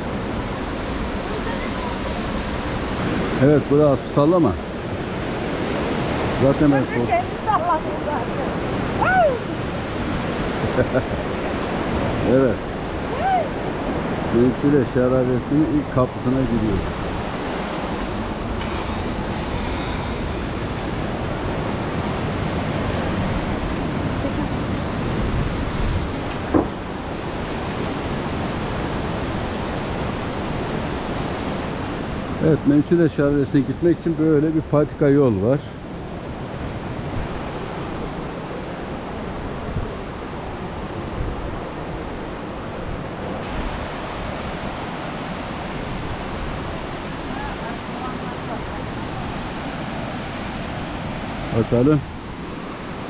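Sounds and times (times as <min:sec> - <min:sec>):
mountain stream rushing: 0:00.0 - 0:53.0
wind rumble on microphone: 0:00.0 - 0:53.0.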